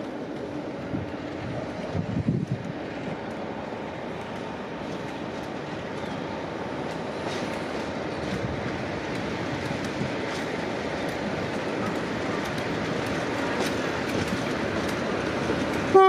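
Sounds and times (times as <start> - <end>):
train rolling rumble: 0.0 - 16.0
train wheel clicks: 0.0 - 16.0.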